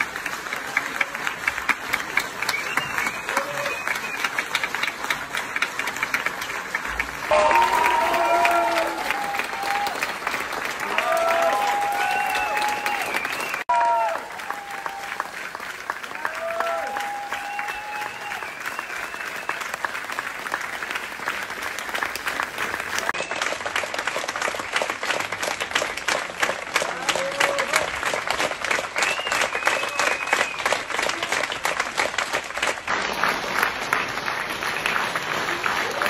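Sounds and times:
audience applauding: 0.0s - 36.0s.

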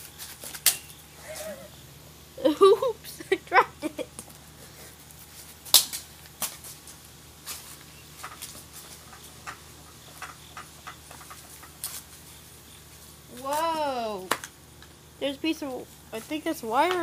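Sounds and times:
flip-flop footsteps on grass: 4.3s - 9.4s.

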